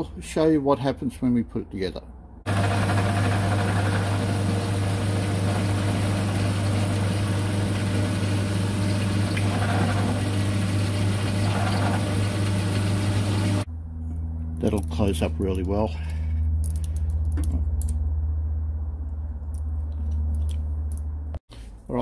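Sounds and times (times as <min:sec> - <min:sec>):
milling machine humming: 0:02.5 - 0:13.7
faint metal cutting noise: 0:02.5 - 0:14.4.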